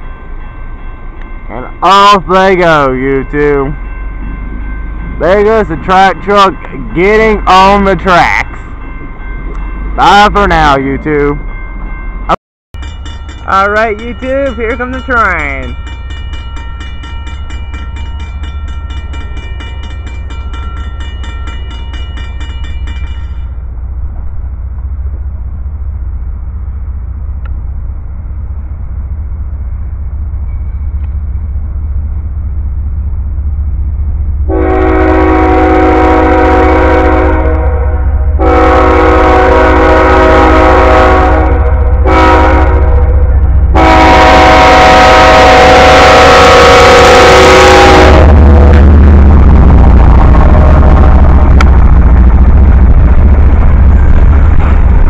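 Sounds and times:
high ringing: 0:00.0 - 0:24.0
low rumble of train: 0:00.0 - 0:55.0
locomotive horn blasts: 0:34.5 - 0:48.6.

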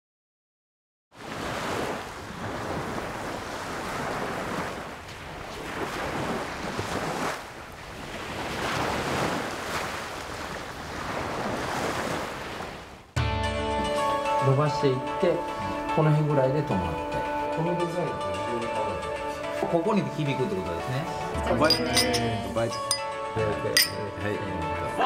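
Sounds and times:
ocean surf on beach: 0:01.2 - 0:13.2.

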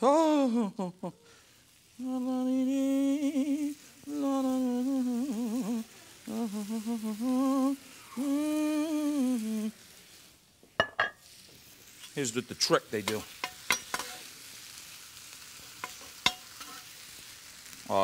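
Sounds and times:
man humming a tune: 0:00.0 - 0:01.2, 0:02.0 - 0:09.7.

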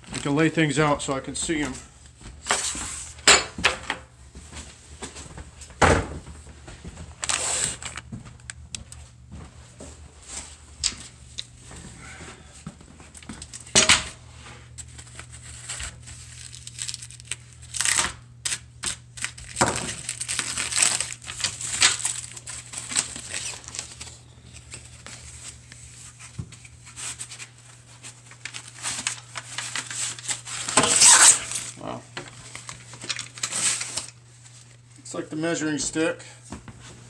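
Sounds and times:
plastic wrapping crinkling and tearing: 0:07.1 - 0:08.1, 0:14.8 - 0:34.8.

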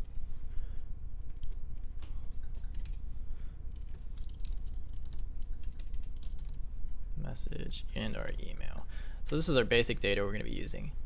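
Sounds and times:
low steady hum: 0:00.0 - 0:11.0
keyboard typing clicks: 0:01.2 - 0:03.0.

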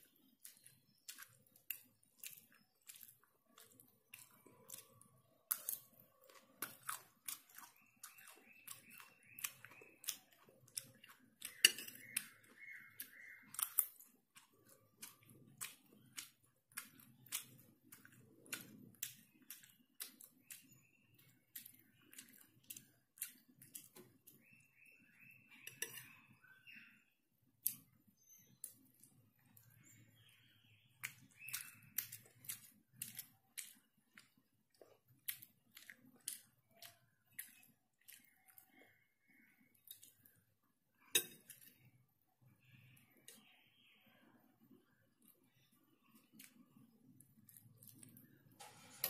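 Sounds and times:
soft chewing: 0:00.0 - 0:49.0
metal spoon scraping ceramic plate: 0:48.6 - 0:49.0.

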